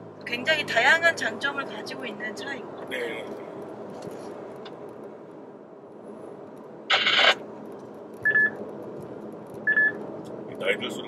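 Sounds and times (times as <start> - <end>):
road and drivetrain noise in car: 0.0 - 11.0
short high beep: 8.3 - 8.6.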